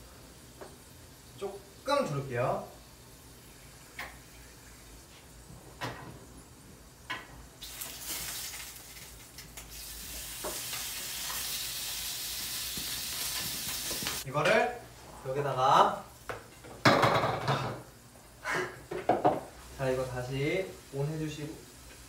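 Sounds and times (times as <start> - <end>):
bacon sizzling in a frying pan: 7.6 - 14.3, 18.8 - 22.0.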